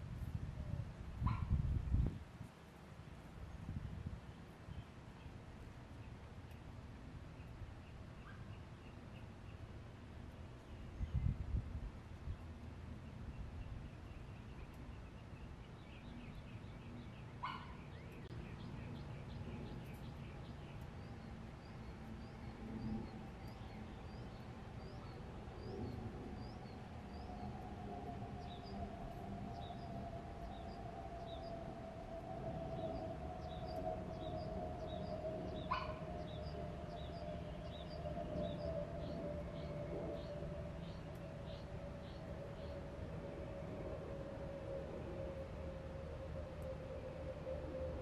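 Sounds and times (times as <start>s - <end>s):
low wind rumble: 0.0s - 48.0s
birds chirping: 12.3s - 43.9s.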